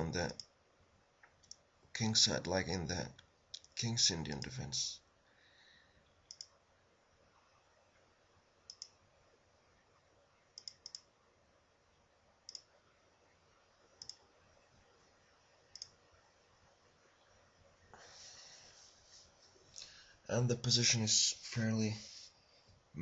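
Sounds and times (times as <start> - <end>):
computer mouse clicking: 0.2 - 0.6, 1.2 - 1.7, 6.3 - 6.6, 8.7 - 9.0, 10.6 - 11.1, 12.5 - 12.7, 14.0 - 14.2, 15.7 - 16.0.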